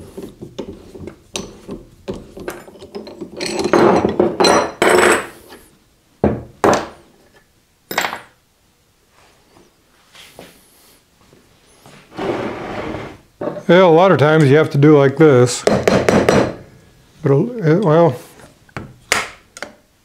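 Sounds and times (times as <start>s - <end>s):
rough scraping: 12.1s - 13.2s
sharp knocks: 15.6s - 16.6s.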